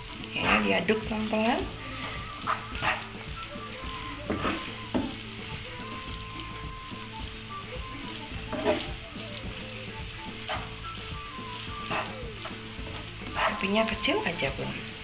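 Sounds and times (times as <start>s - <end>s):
food sizzling in a frying pan: 0.0s - 15.0s
spatula scraping a pan: 1.9s - 3.2s, 3.9s - 5.2s, 8.4s - 9.0s, 11.6s - 13.7s.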